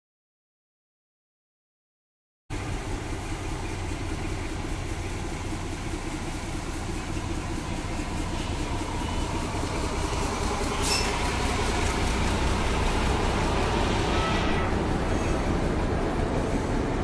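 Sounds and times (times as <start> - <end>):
locomotive engine drone: 2.5 - 17.0
high squeal: 7.1 - 15.6.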